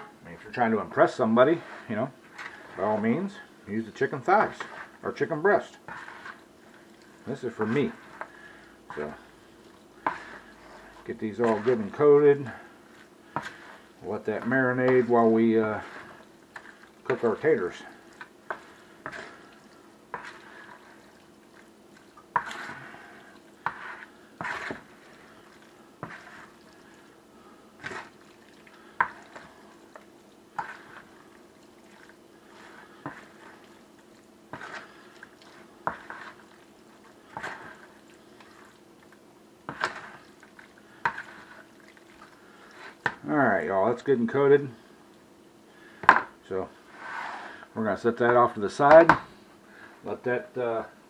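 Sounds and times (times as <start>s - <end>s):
wet stirring and scraping: 0.0s - 50.9s.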